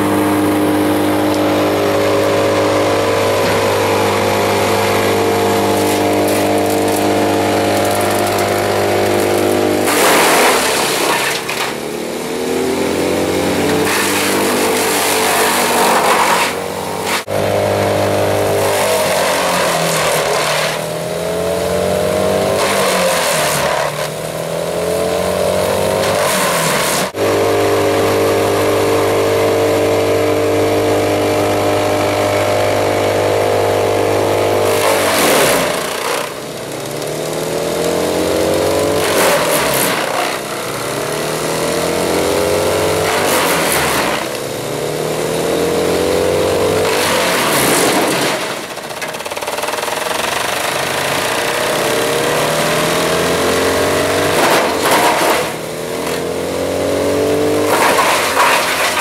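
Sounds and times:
wood crunching and splintering: 0.0 - 11.8, 12.6 - 17.6, 34.5 - 45.1, 45.8 - 59.0
wood chipper engine: 0.0 - 59.0.

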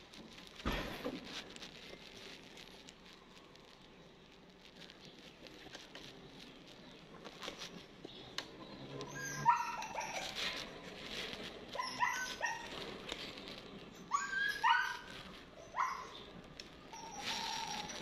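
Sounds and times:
dog barking: 15.7 - 16.1.

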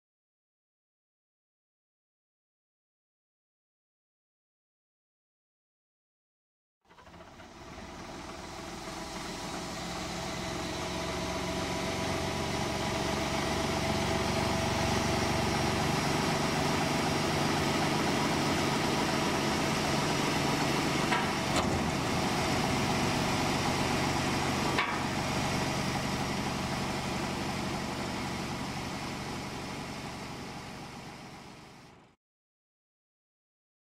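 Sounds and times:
air compressor diesel engine: 6.9 - 32.2.

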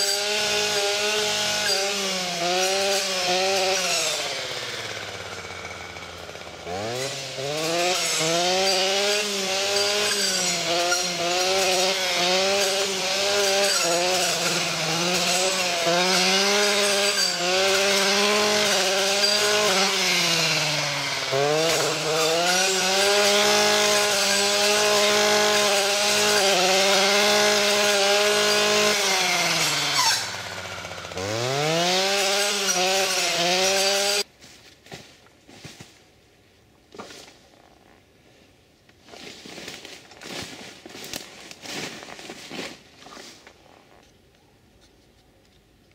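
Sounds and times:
brushcutter engine revving: 0.0 - 34.3.

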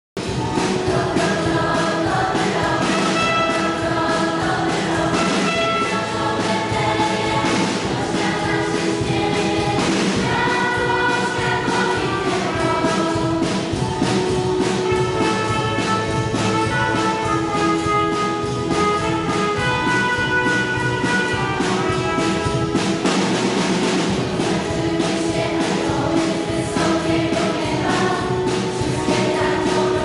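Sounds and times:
choir singing a carol: 0.4 - 22.8, 24.2 - 30.0
trumpet playing: 2.8 - 4.4, 5.0 - 6.6, 10.4 - 12.5, 14.8 - 23.1.

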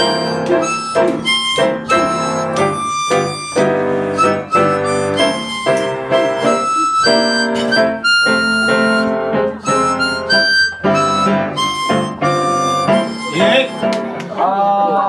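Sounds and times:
harmonica melody: 0.0 - 14.2
piano accompaniment: 0.0 - 14.4.

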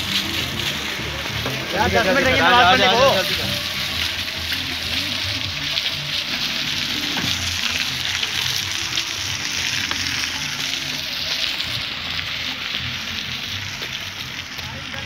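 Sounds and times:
tyres hissing on wet road: 0.0 - 15.0.

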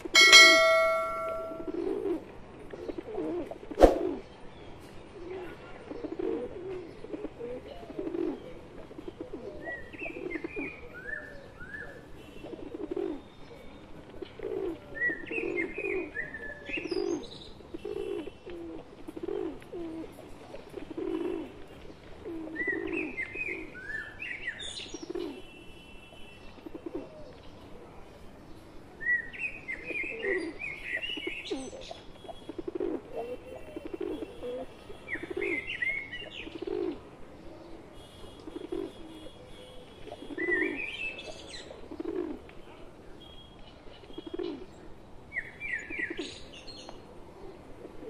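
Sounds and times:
pigeons cooing: 0.0 - 4.2, 5.2 - 11.7, 12.4 - 24.2, 26.6 - 27.4, 29.7 - 42.5, 44.1 - 44.8, 47.4 - 48.0
bird chirping high: 0.2 - 1.9.

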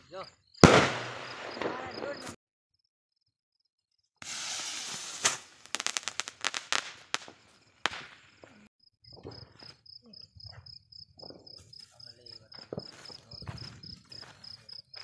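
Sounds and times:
crickets chirping: 0.0 - 15.0
firework rocket hiss: 0.6 - 2.3, 4.2 - 8.4
crackling firework pops: 0.6 - 2.4, 4.2 - 9.5
firework bang: 0.6 - 2.4, 4.2 - 8.6.

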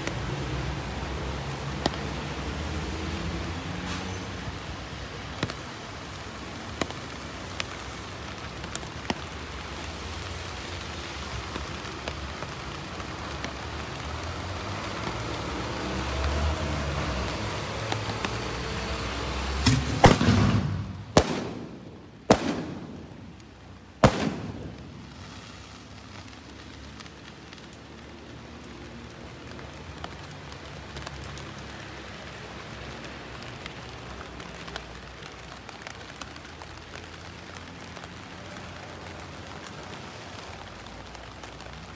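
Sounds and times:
fireworks bangs: 19.6 - 25.8
fireworks rockets hissing: 24.0 - 26.0.

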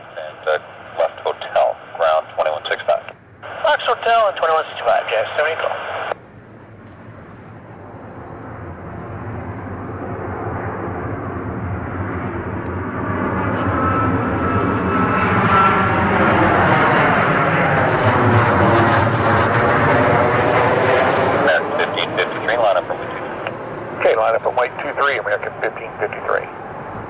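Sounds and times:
faint steady whine: 0.0 - 14.4, 21.4 - 27.0
jet engines on approach: 0.0 - 27.0.

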